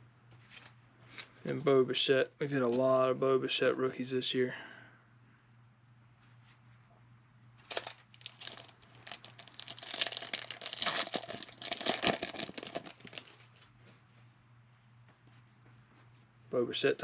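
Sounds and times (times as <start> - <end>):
foil wrapper crinkling and tearing: 7.6 - 13.6.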